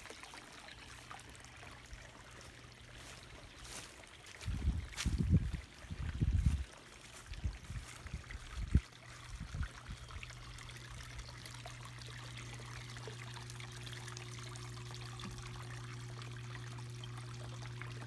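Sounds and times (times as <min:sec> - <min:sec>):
water trickling into pond: 0:00.0 - 0:18.0
steady low hum: 0:08.2 - 0:18.0.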